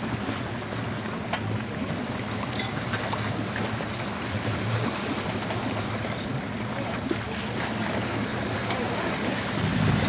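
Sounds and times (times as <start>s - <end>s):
choppy water around boat: 0.0s - 10.0s
low rumble: 9.4s - 10.0s.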